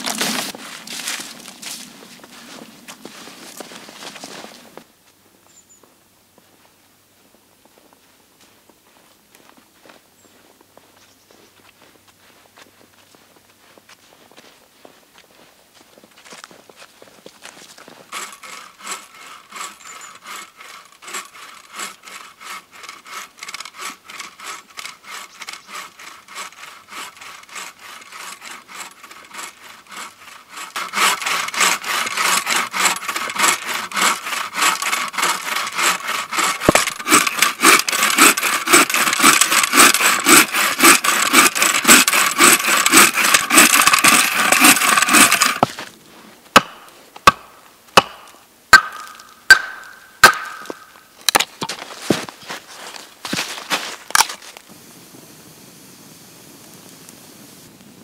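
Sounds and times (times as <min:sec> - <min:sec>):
hand saw cutting a log: 0:00.0 - 0:04.8, 0:17.8 - 0:45.9, 0:46.6 - 0:54.6
hatchet chopping wood: 0:27.5 - 0:45.9, 0:46.6 - 0:52.2.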